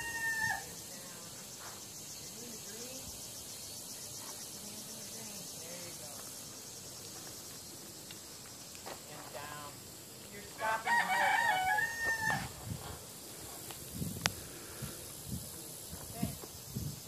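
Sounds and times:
rooster crowing: 0.0 - 0.8, 10.6 - 12.6.

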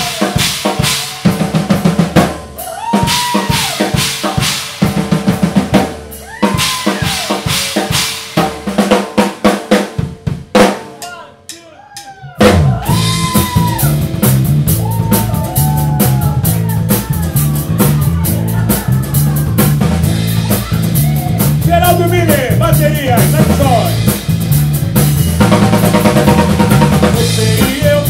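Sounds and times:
drum kit beat: 0.0 - 28.0
electric bass: 12.4 - 28.0
man singing: 21.6 - 24.0, 27.0 - 28.0.

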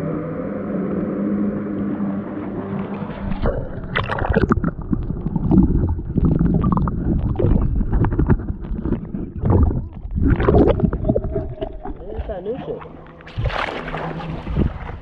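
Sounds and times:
jet ski engine drone: 0.0 - 3.4
underwater gurgling and sloshing: 0.0 - 15.0.

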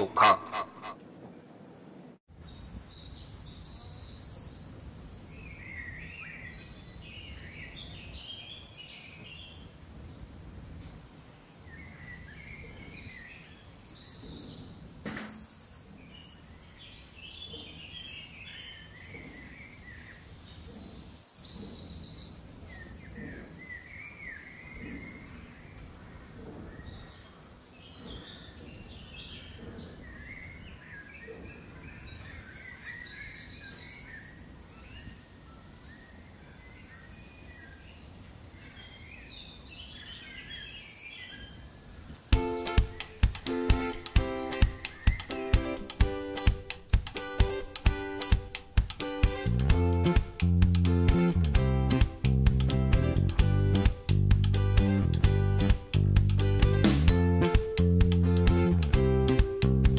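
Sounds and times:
small birds chirping: 2.4 - 59.9
sharp click: 42.4 - 59.7.

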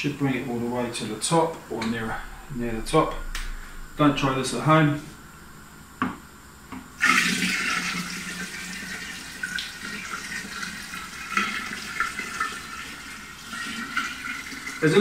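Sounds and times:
liquid pouring and splashing: 7.0 - 14.9.

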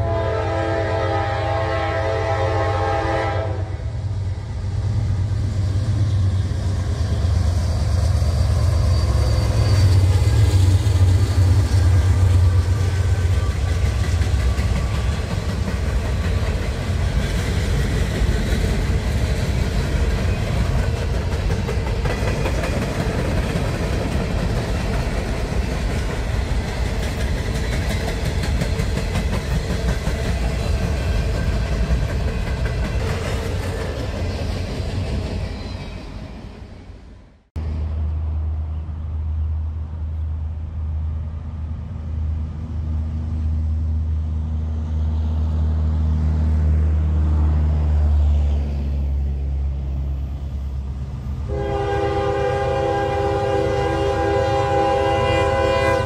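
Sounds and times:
steel wheels clattering on rails: 7.7 - 35.8.

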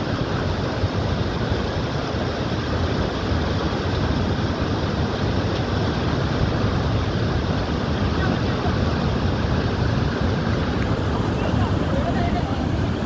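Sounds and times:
water rushing over weir: 0.0 - 13.0.

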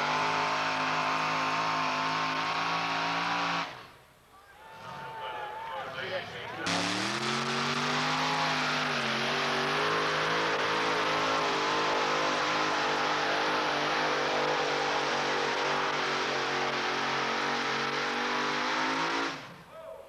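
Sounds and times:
tractor engines high-pitched drone: 6.6 - 19.4.

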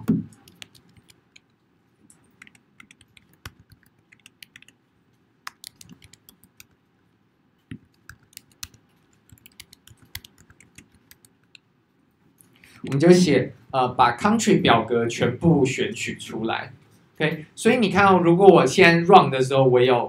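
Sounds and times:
typing on computer keyboard: 0.3 - 1.5, 2.1 - 4.8, 5.5 - 6.8, 7.7 - 11.6.

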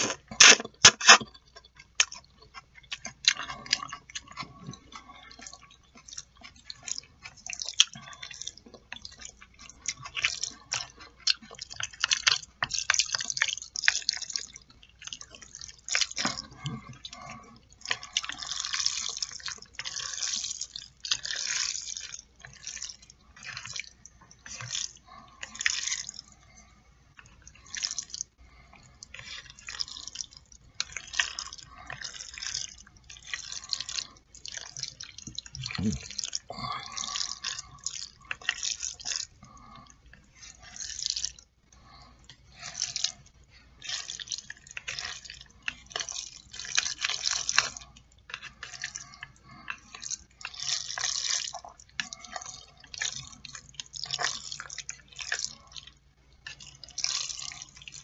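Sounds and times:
noodles stirred with chopsticks: 42.2 - 58.0.

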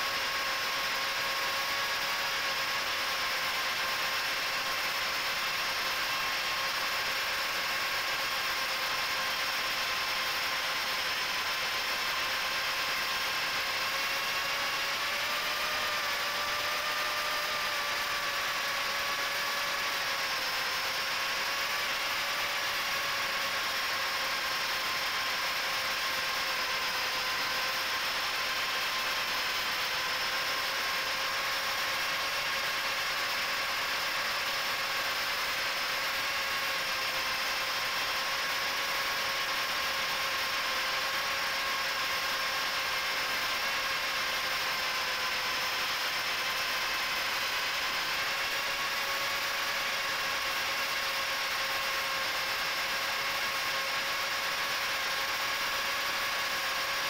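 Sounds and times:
drone motors whining: 9.5 - 34.2.

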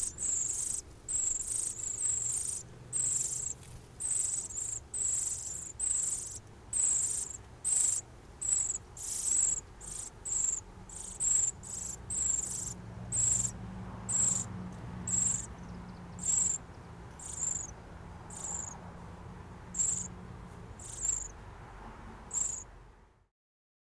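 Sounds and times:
bird nestlings begging calls: 0.0 - 14.5, 15.1 - 16.6, 17.2 - 17.7, 18.3 - 18.8, 19.7 - 20.1, 20.8 - 21.3, 22.3 - 22.6.

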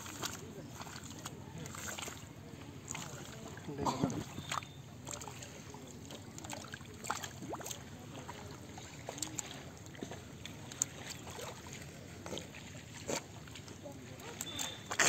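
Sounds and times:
small wet slaps: 0.0 - 2.2, 4.4 - 8.4
hands squelching in wet mud: 0.0 - 15.0.

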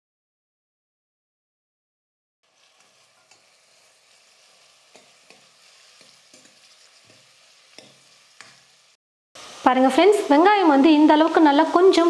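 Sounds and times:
onions sizzling in hot oil: 2.4 - 12.0
ladle stirring and clinking on pot: 2.6 - 3.9, 4.9 - 8.7.

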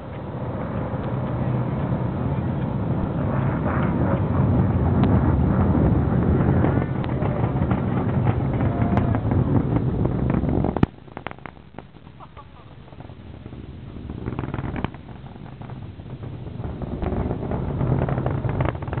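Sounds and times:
distant rocket launch rumble: 0.0 - 19.0
wind buffeting microphone: 0.0 - 19.0.

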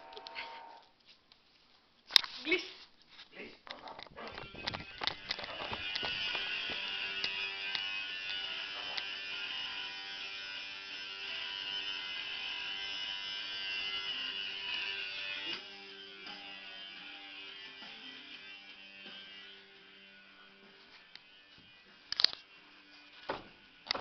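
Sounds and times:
faint music: 2.4 - 24.0
electric machine buzzing: 4.2 - 24.0.

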